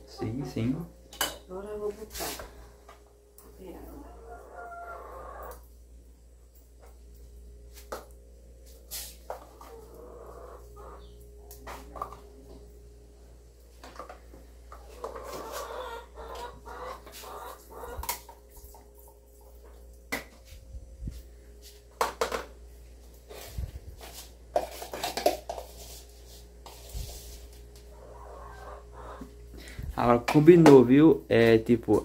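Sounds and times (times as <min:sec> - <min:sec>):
pots bowls and spoons clinking: 0:01.1 - 0:01.5
chickens clucking: 0:03.8 - 0:05.7, 0:09.4 - 0:12.1, 0:14.7 - 0:18.3, 0:27.8 - 0:29.6.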